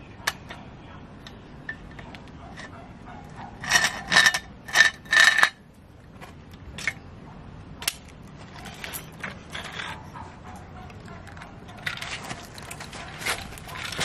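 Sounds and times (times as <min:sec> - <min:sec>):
toy container scraping on concrete: 0:01.7 - 0:05.6, 0:08.4 - 0:10.2, 0:11.3 - 0:14.0.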